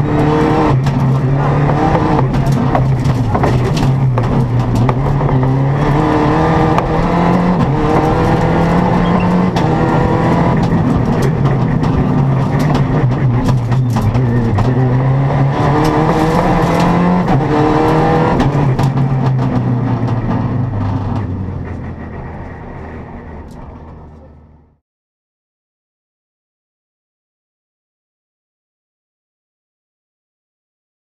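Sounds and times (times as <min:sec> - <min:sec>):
rally car engine changing gear: 0:00.0 - 0:24.7
sharp clicks and cracks: 0:00.7 - 0:05.1.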